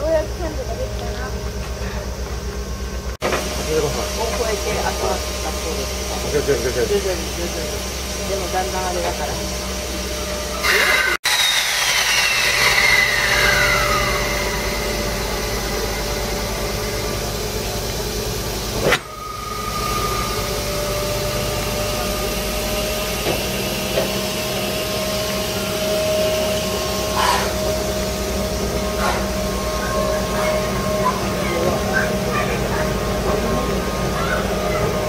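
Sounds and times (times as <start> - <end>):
falling whine: 0.0 - 35.0
compressed air hiss and hum: 26.5 - 30.4.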